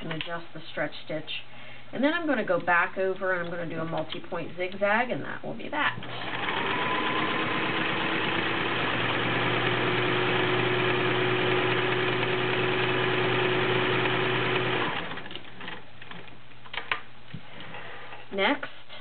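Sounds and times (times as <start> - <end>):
sewing machine running: 6.0 - 15.8.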